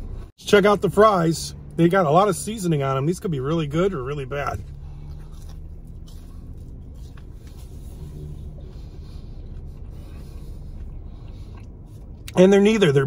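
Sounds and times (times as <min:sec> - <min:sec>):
car idling cabin rumble: 0:00.0 - 0:13.0
faint chewing: 0:04.1 - 0:13.0.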